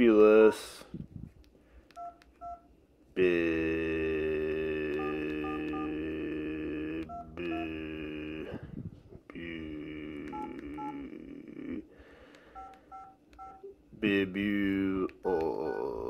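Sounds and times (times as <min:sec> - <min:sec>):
phone keypad beeps: 0:01.9 - 0:02.7, 0:05.0 - 0:06.0, 0:07.0 - 0:07.7, 0:10.3 - 0:11.0, 0:12.5 - 0:13.7.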